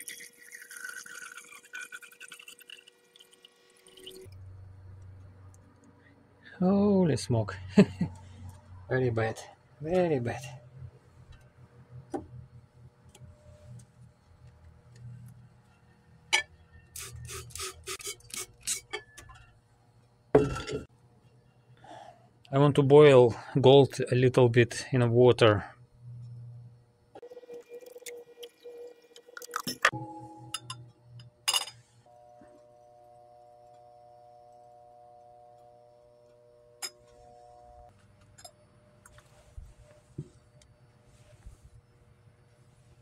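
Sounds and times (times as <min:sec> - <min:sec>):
liquid pouring into glass beaker: 0:00.0 - 0:04.4
low steady hum: 0:18.3 - 0:27.2, 0:27.9 - 0:43.0
glass vessel knocking down: 0:20.4 - 0:20.9.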